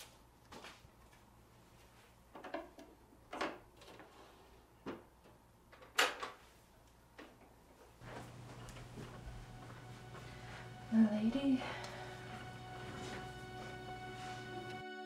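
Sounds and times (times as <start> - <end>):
low steady hum: 7.7 - 14.9.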